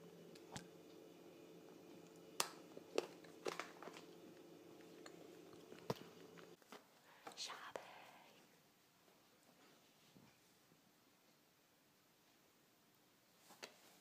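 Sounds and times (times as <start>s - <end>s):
faint steady hum: 0.0s - 14.0s
person chewing chocolate: 2.0s - 6.6s.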